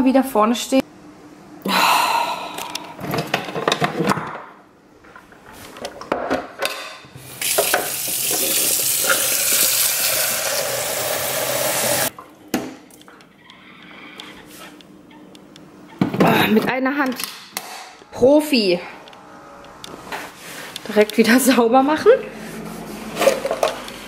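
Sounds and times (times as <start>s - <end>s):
water running from a tap: 7.4s - 12.1s.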